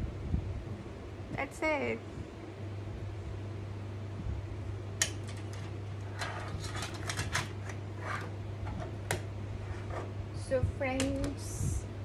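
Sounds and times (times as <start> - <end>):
steady low hum: 0.0 - 12.0
small clicks and rattles: 5.0 - 7.8.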